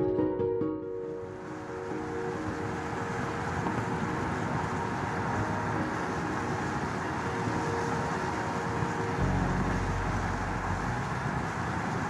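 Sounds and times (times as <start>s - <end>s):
road and tyre noise: 1.2s - 12.0s
car engine running: 9.2s - 12.0s.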